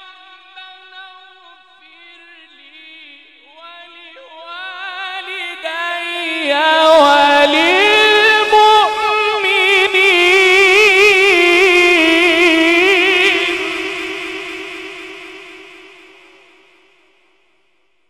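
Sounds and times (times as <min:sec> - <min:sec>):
man chanting melismatic recitation: 0:00.0 - 0:16.1.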